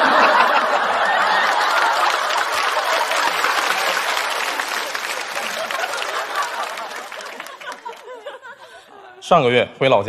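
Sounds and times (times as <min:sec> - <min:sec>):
audience applauding: 0:00.0 - 0:08.6
audience laughing: 0:00.0 - 0:09.2.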